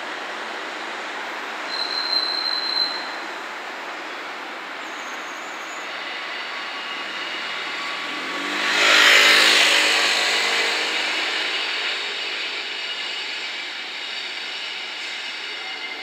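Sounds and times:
freight locomotive creeping: 0.0 - 16.0
faint high wheel squeal: 1.6 - 16.0
loud engine sound: 5.7 - 16.0.

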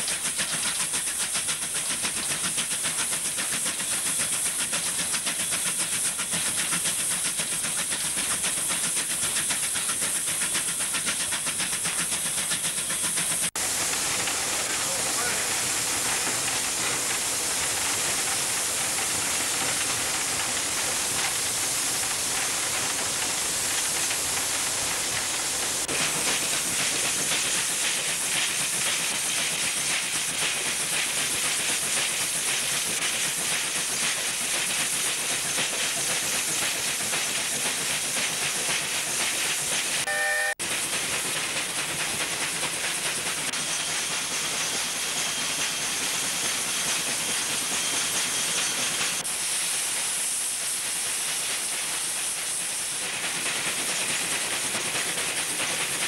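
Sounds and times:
steam locomotive running: 0.0 - 56.0
brief high pitched tone: 40.0 - 40.6.

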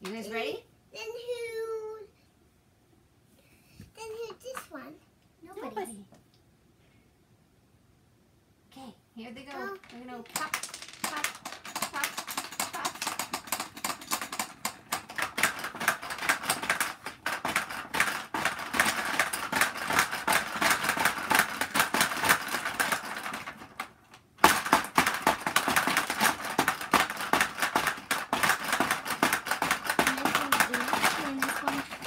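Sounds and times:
plastic game pieces clacking: 9.5 - 32.0.

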